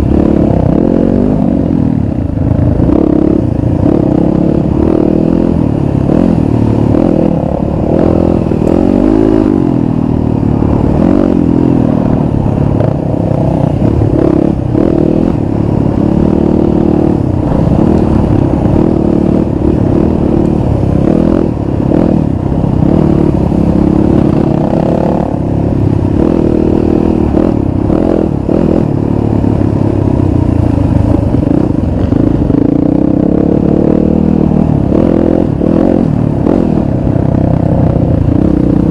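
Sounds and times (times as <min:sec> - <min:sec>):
dirt bike engine revving: 0:00.0 - 0:02.1, 0:02.7 - 0:30.2, 0:31.0 - 0:38.9.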